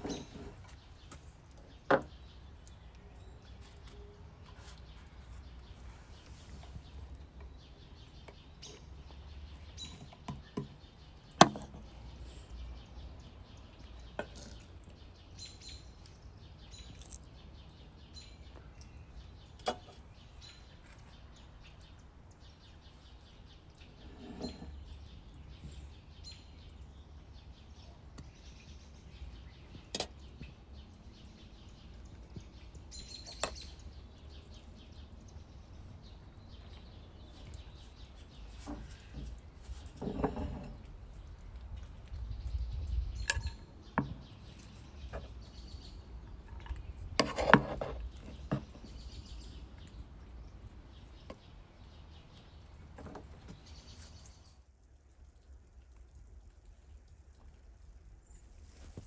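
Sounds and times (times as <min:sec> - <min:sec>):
faint bird chirps: 0:42.4 - 0:46.0.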